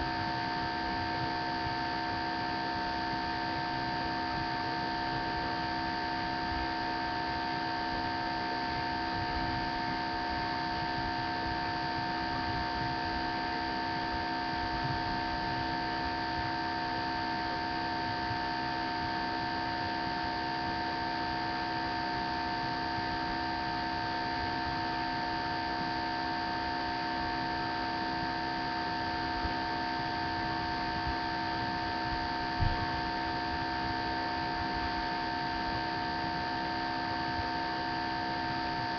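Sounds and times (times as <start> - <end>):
electrical hum and hiss: 30.6 - 35.1.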